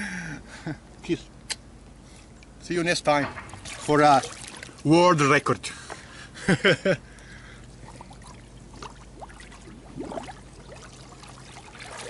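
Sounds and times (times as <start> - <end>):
river water sloshing and trickling: 3.2 - 6.1, 7.6 - 12.0.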